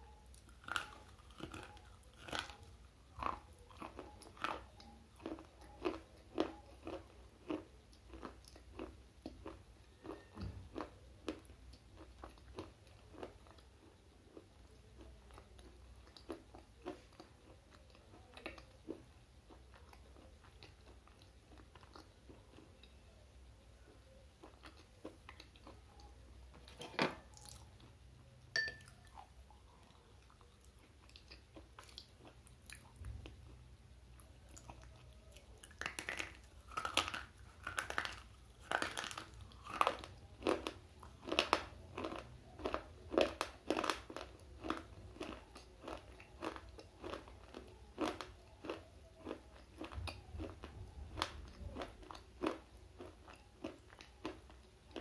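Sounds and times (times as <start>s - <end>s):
crisp chewing crunches: 0.3s - 23.1s, 34.2s - 55.0s.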